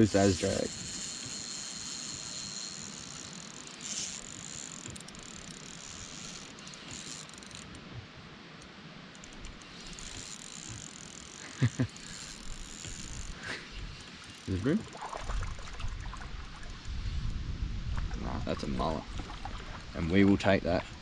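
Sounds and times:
fishing reel whirring: 0.0 - 7.8, 9.1 - 17.4.

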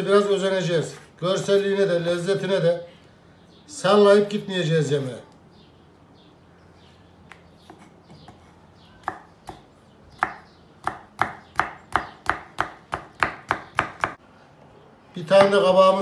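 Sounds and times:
knife chopping on wooden board: 7.6 - 14.2.

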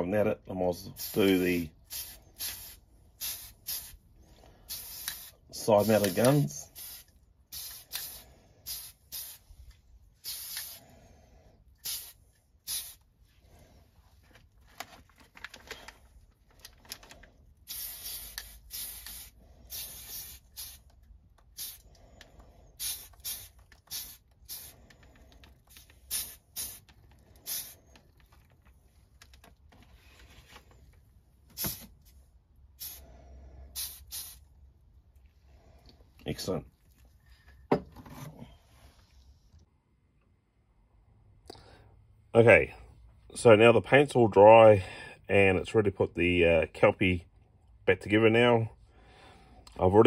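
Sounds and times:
spray can hissing bursts: 0.9 - 9.6, 10.2 - 10.9, 11.8 - 13.1, 17.6 - 22.0, 22.7 - 24.9, 25.5 - 27.9, 31.5 - 32.1, 32.7 - 33.1, 33.7 - 34.5.

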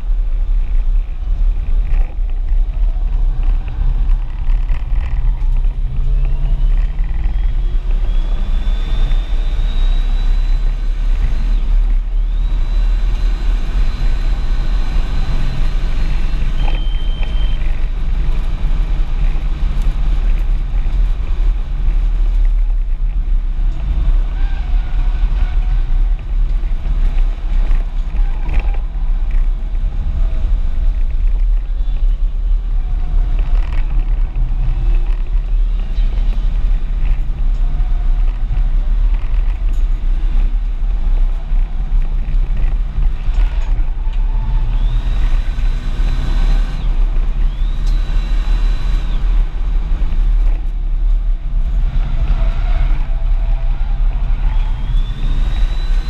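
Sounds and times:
car engine and road rumble: 0.0 - 56.0
thin whine rising in pitch: 2.1 - 17.9, 43.5 - 49.6, 51.9 - 56.0.

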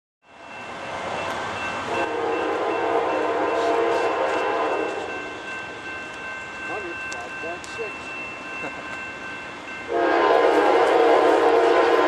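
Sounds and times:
locomotive horn blast: 1.9 - 5.1, 9.9 - 12.0.

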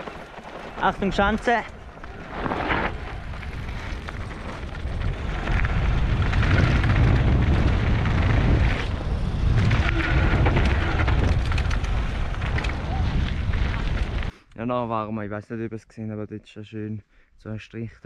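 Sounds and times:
bike tyres rumbling over trail: 0.0 - 14.3
wind buffeting microphone: 0.8 - 14.3.

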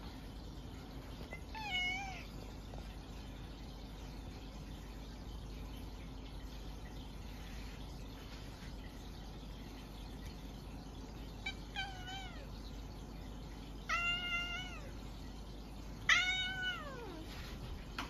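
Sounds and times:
cat meowing: 1.3 - 2.3, 11.4 - 12.5, 13.9 - 14.9, 16.1 - 17.3.

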